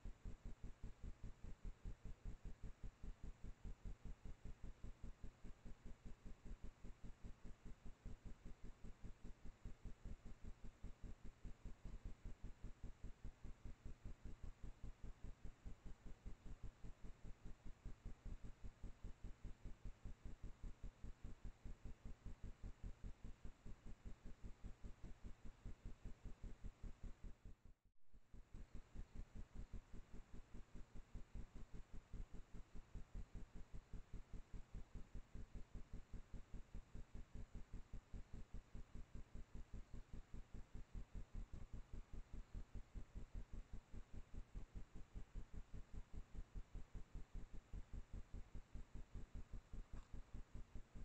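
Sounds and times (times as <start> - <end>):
faint electrical low pulsing: 0.0 - 51.0
faint steady hiss: 0.0 - 51.0
low-pitched electrical pulsing: 28.3 - 51.0.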